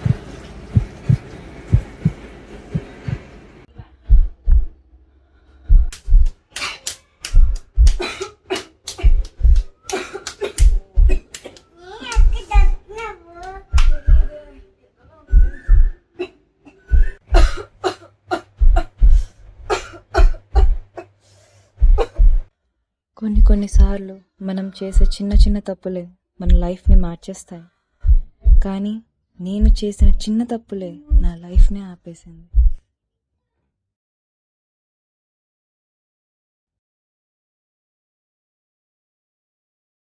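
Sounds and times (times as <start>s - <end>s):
heartbeat double thumps: 0.0s - 4.8s, 5.6s - 6.5s, 7.3s - 8.2s, 9.0s - 9.9s, 10.5s - 11.3s, 12.2s - 12.9s, 13.6s - 14.4s, 15.3s - 16.0s, 16.9s - 17.8s, 18.5s - 20.9s, 21.8s - 22.5s, 23.3s - 24.0s, 24.9s - 25.6s, 26.4s - 27.3s, 28.0s - 28.9s, 29.5s - 30.4s, 31.1s - 32.8s
woman coughing: 7.9s - 9.2s, 9.9s - 11.6s, 16.2s - 19.0s, 19.7s - 21.2s, 22.0s - 22.4s.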